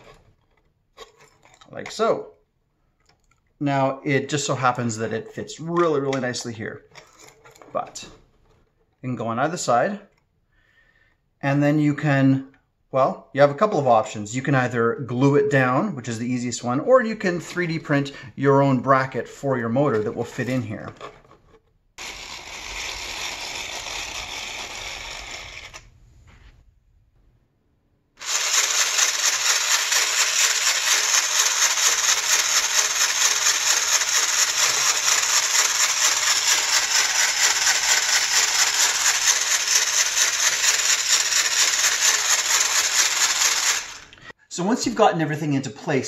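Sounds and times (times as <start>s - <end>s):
plastic gears rattling: 0.0s - 2.1s, 5.8s - 8.7s, 19.9s - 25.9s, 28.2s - 44.2s
small electric motor whirring: 22.0s - 26.0s, 28.2s - 44.3s.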